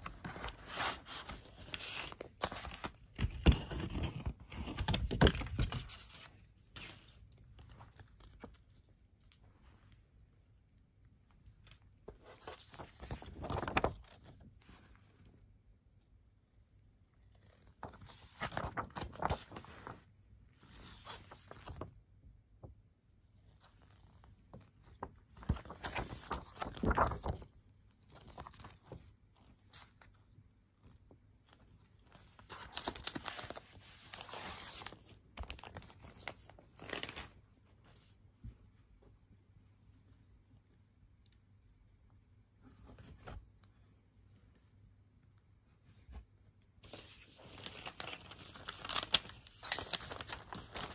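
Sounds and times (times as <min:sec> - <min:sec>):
paper rustling and crinkling: 0:00.0 - 0:10.0, 0:11.6 - 0:15.3, 0:17.3 - 0:22.0, 0:23.6 - 0:30.2, 0:30.8 - 0:38.2, 0:46.1 - 0:50.9.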